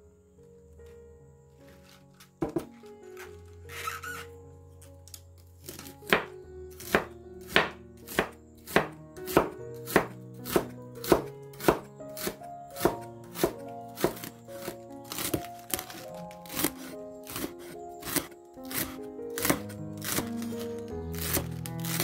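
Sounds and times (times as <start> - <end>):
soft background music: 0.0 - 22.0
knife chopping on wooden board: 2.4 - 2.7, 5.7 - 20.4, 21.1 - 22.0.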